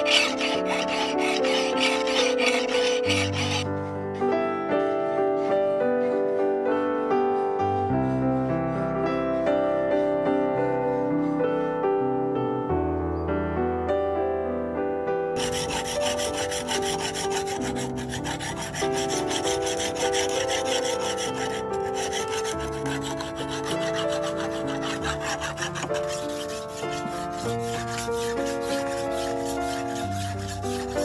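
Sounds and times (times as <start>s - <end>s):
blade grinding on whetstone: 0.0s - 3.7s, 15.4s - 31.0s
hand file on knife blade: 0.0s - 3.7s, 15.4s - 31.0s
keyboard background music: 10.8s - 31.0s.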